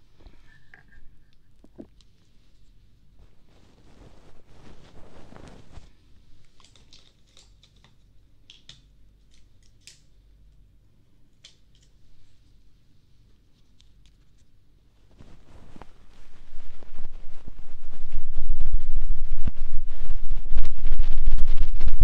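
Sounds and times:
rapid fluttering rub: 3.2 - 6.0, 15.1 - 22.0.

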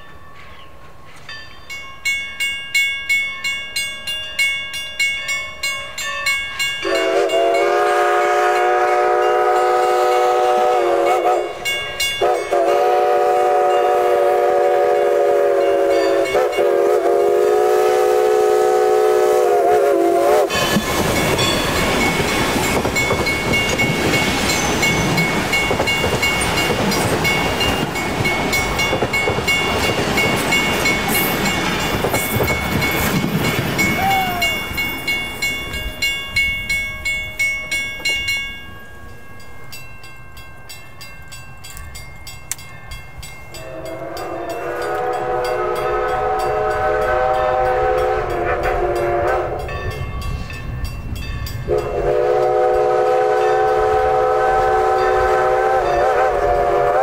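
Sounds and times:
locomotive bell ringing: 0.0 - 18.2, 20.3 - 56.6
train wheel and rail noise: 0.0 - 57.0
steam whistle blasts: 6.8 - 21.5, 33.8 - 34.8, 43.6 - 50.0, 51.7 - 57.0.

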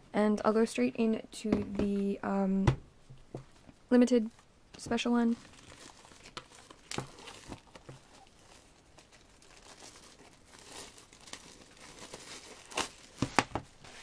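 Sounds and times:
plastic wrapping crinkling: 5.2 - 14.0.

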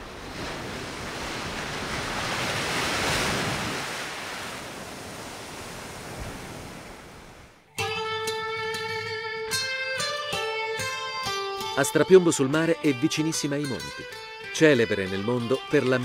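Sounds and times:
plucked guitar music: 7.7 - 16.0.

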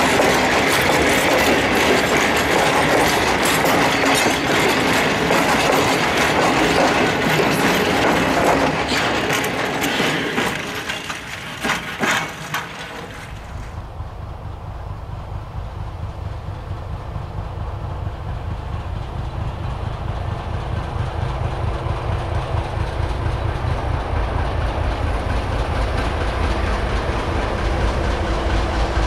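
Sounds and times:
sharp metal clanks: 0.0 - 13.8
train wheels clattering: 0.0 - 29.0.

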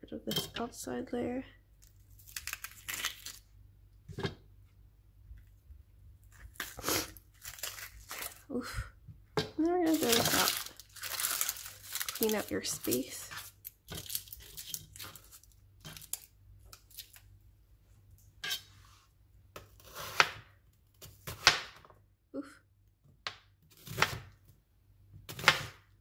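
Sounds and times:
onion skin rustling and tearing: 1.8 - 3.6, 6.2 - 8.6, 9.6 - 17.4.

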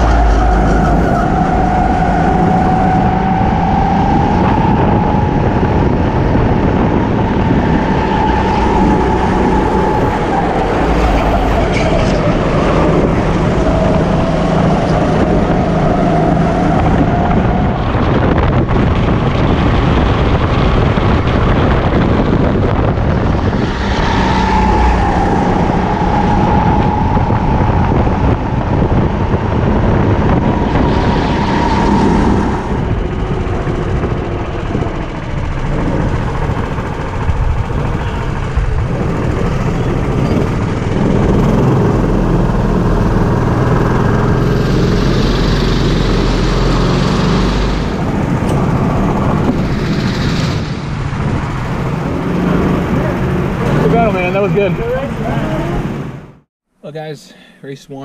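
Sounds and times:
rush of wind: 0.0 - 56.5
track noise: 0.0 - 57.2
kart engine running hard: 5.2 - 23.6, 28.2 - 56.2.

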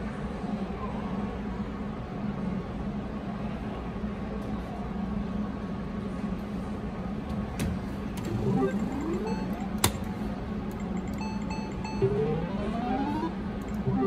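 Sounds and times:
steady low hum: 7.9 - 14.0
short electronic beeps: 8.3 - 9.8, 10.8 - 14.0
short rising electronic chirp: 8.3 - 9.8, 10.8 - 14.0.

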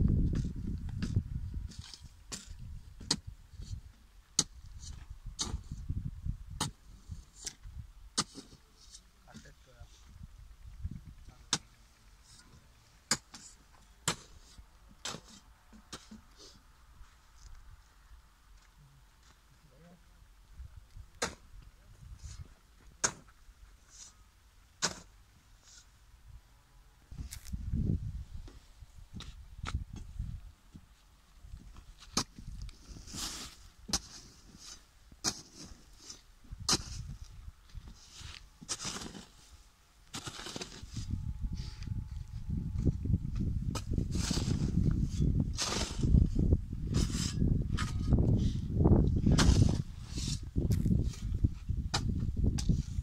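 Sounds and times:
hoe striking stony soil: 0.3 - 3.8, 4.4 - 5.8, 6.6 - 7.6, 8.2 - 9.5, 11.3 - 16.4, 21.1 - 21.6, 22.2 - 25.9, 28.4 - 30.1, 31.5 - 41.8, 43.4 - 53.0
footsteps on stony soil: 27.1 - 27.9, 49.0 - 53.0.

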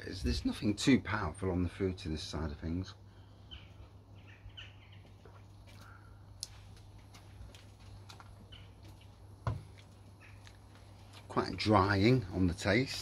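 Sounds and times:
steady low hum: 0.0 - 13.0
faint bird chirps: 3.1 - 6.2, 10.1 - 10.5.

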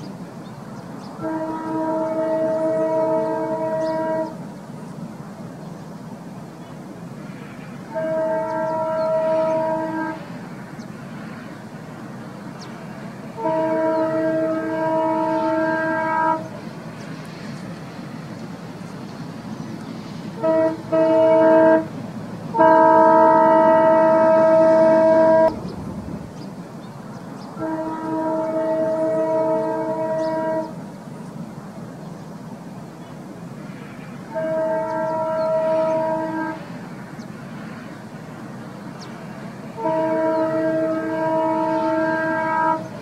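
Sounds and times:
train rumbling: 0.0 - 43.0
train horn blasts: 1.1 - 4.4, 7.4 - 10.4, 13.2 - 17.4, 20.2 - 25.6, 27.5 - 30.8, 33.8 - 36.9, 39.7 - 43.0.

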